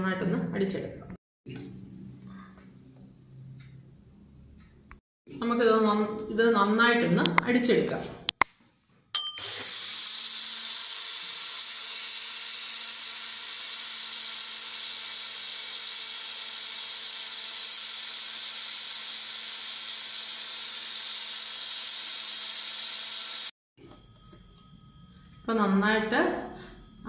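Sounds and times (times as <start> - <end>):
mixer grinder whirring: 9.4 - 24.4.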